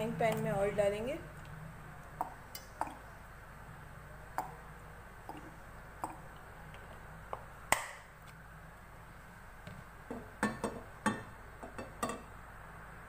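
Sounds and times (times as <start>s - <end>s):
oil ticking and popping in pan: 1.4s - 3.0s, 5.2s - 8.0s, 10.1s - 12.3s.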